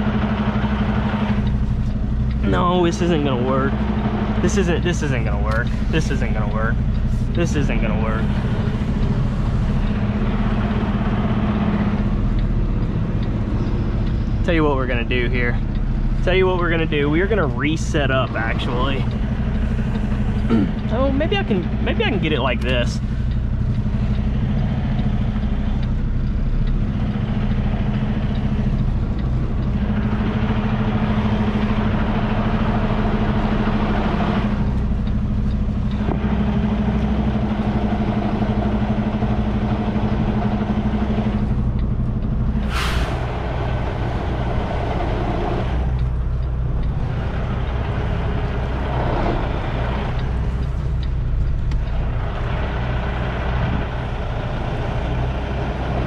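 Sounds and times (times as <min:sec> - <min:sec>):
diesel truck engine running: 0:00.0 - 0:56.0
sharp air hiss: 0:42.6 - 0:43.3.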